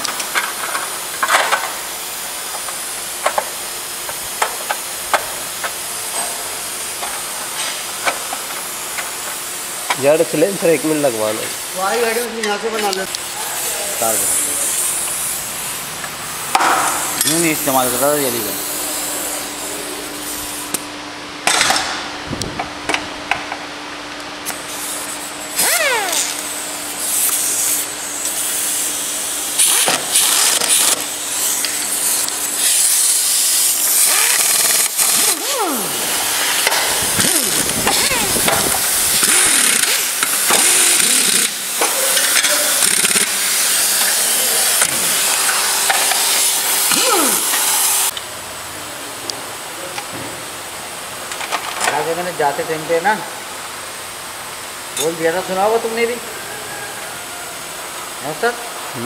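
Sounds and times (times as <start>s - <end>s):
steady hiss: 0.3s - 20.8s
power driver whirring: 25.5s - 26.6s, 33.6s - 41.8s.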